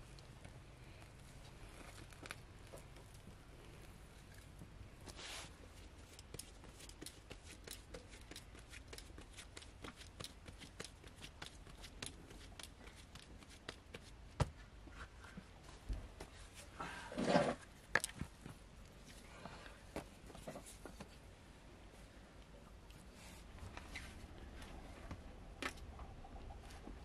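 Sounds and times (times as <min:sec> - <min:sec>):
hands kneading dough: 0:00.0 - 0:17.0.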